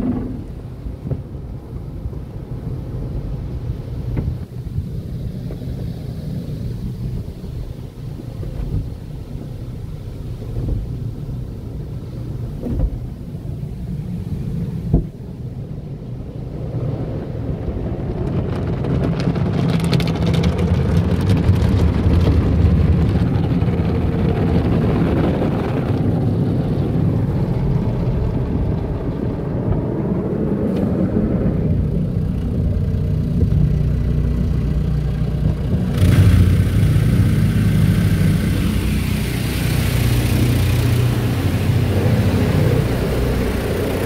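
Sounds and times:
car wash water spray rumble: 0.0 - 44.0.

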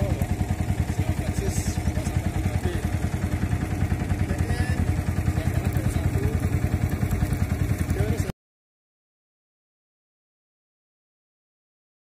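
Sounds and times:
boat engine throbbing: 0.0 - 8.3.

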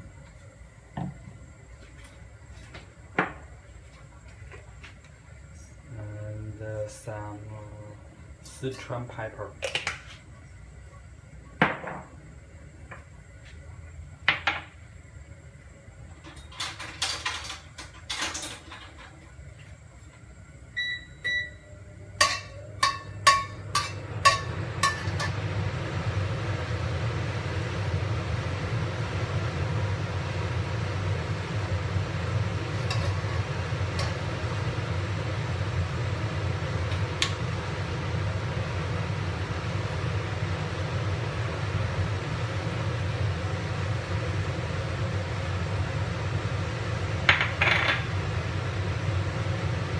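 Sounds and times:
gas burner hissing: 0.0 - 49.9
peppercorns frying in oil: 5.8 - 10.7, 22.1 - 49.9.

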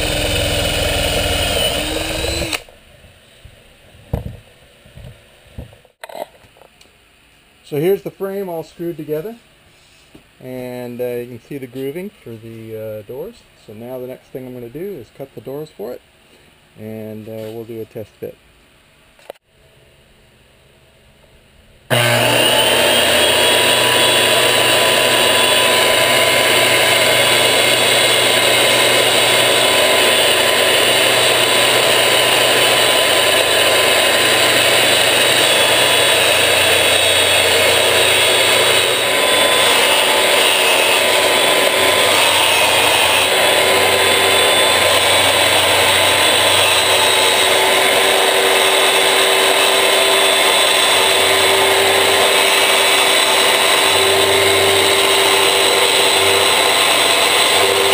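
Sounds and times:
circular saw cutting plywood: 0.0 - 2.7, 21.9 - 57.9.

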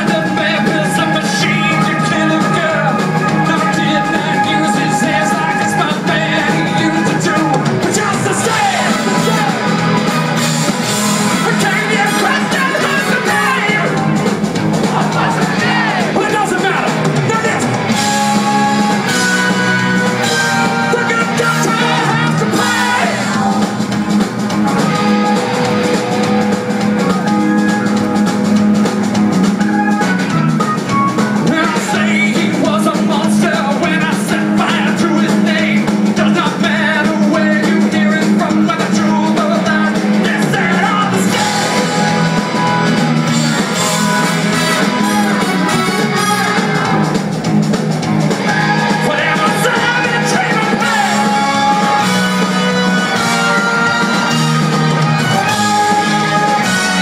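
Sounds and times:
live rock band playing: 0.0 - 57.0
person singing: 20.9 - 23.7, 31.4 - 42.0, 48.5 - 52.6.

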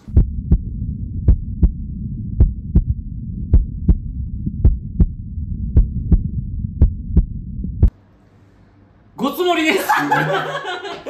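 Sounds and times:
heartbeat thumps: 0.0 - 7.9
steady low drone: 0.0 - 9.1.

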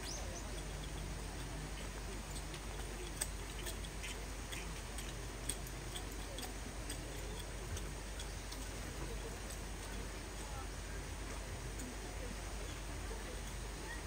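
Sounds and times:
raindrops ticking: 0.0 - 10.6
outdoor background hum: 0.0 - 14.0.

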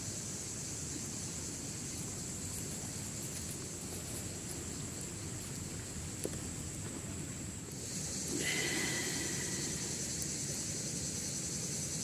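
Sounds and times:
high hiss: 7.5 - 12.0.

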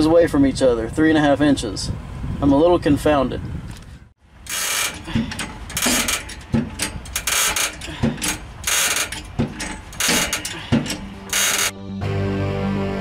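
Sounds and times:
ratchet wrench clicking: 4.4 - 11.7.

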